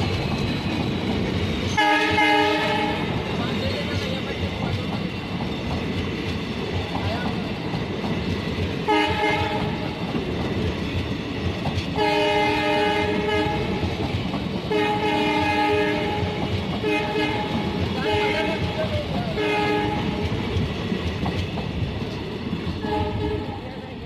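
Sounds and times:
train wheels clattering on rails: 0:00.0 - 0:24.0
train horn blasts: 0:01.7 - 0:03.2, 0:08.8 - 0:09.8, 0:12.0 - 0:13.8, 0:14.7 - 0:20.3, 0:22.8 - 0:23.6.

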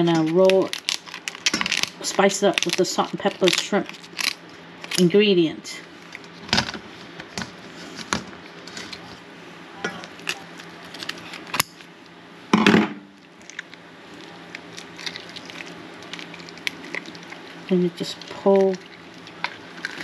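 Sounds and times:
shell crunching: 0:13.3 - 0:17.6.

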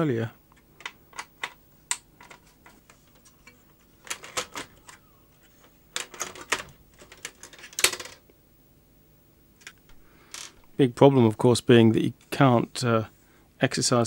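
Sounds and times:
plastic and metal clicks and rattles: 0:00.8 - 0:05.0, 0:05.9 - 0:08.2.

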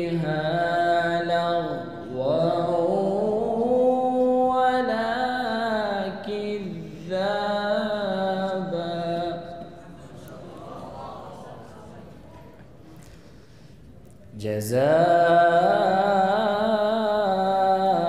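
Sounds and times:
man reciting melodically: 0:00.0 - 0:09.9, 0:14.3 - 0:18.0.

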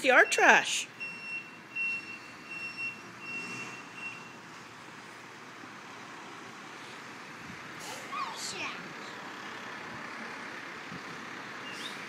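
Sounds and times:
truck engine: 0:00.0 - 0:12.0
reversing alarm beeping: 0:00.1 - 0:04.5.

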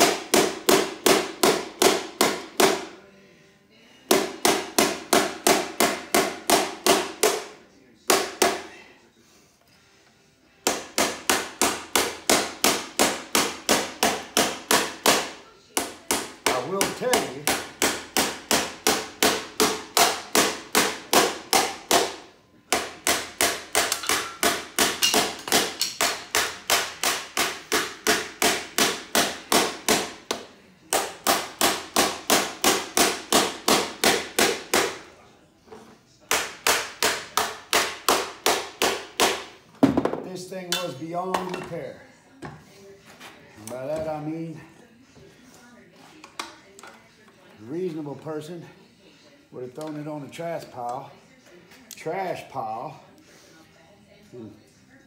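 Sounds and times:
hammer pounding metal on anvil: 0:00.0 - 0:02.8, 0:10.6 - 0:35.0.

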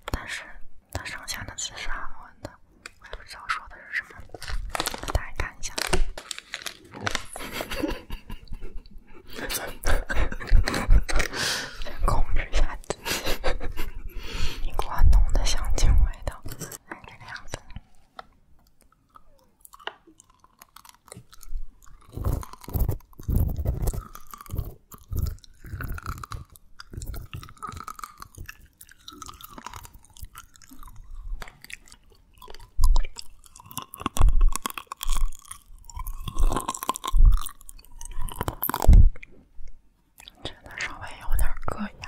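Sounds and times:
candy being chewed and crunched: 0:02.8 - 0:08.0, 0:14.5 - 0:17.8, 0:18.6 - 0:39.4.

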